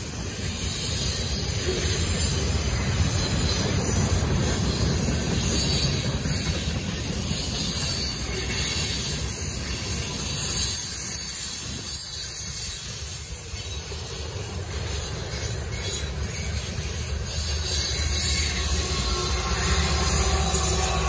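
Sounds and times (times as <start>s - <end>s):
freight train wheels rumbling: 0.0s - 21.0s
high hiss: 15.8s - 21.0s.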